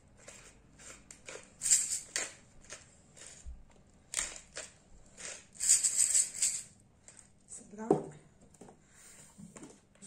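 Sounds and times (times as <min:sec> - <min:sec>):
pepper mill grinding: 0:00.0 - 0:07.3.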